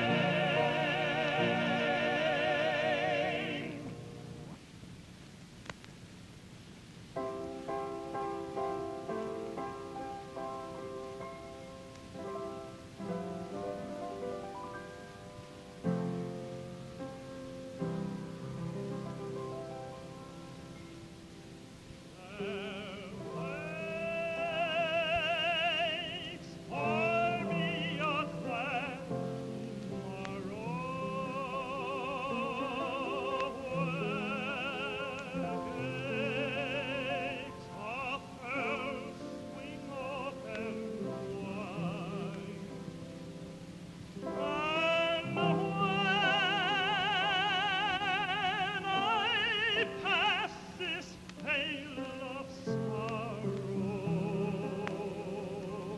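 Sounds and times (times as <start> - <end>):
solo voice singing gospel: 0.0 - 4.4, 15.5 - 55.9.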